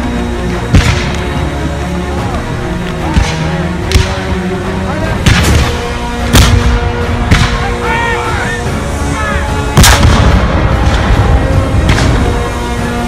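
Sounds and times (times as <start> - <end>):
cannon shots: 5.2 - 7.7, 9.7 - 11.1.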